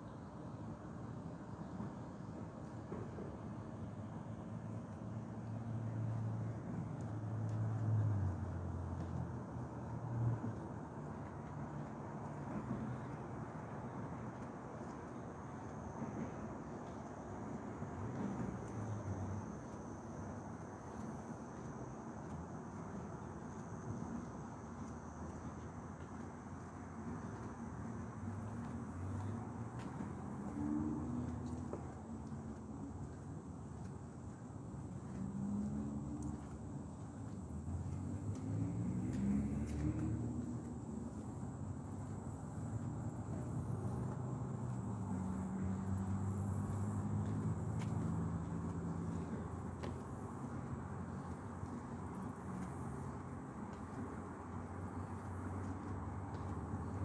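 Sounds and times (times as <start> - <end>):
low outdoor rumble: 0.2 - 57.0
insects trilling: 27.4 - 57.0.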